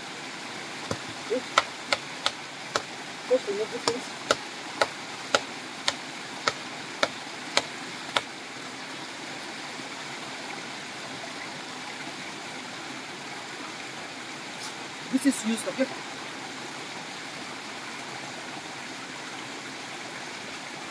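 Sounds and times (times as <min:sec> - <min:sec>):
stream running: 0:00.0 - 0:20.9
vine striking rock: 0:00.8 - 0:03.0.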